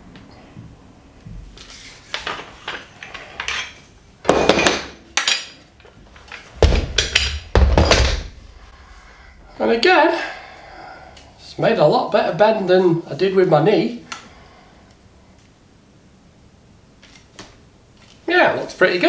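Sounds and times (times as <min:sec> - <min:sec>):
heavier thumps: 0:06.5 - 0:09.7.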